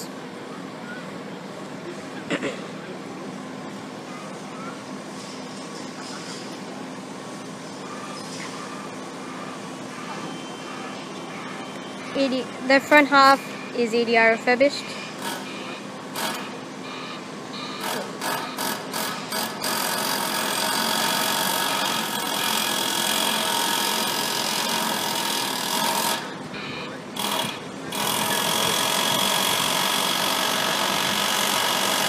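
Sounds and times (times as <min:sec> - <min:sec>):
electric train running noise: 0:02.8 - 0:32.0
train motor whining: 0:14.4 - 0:32.0.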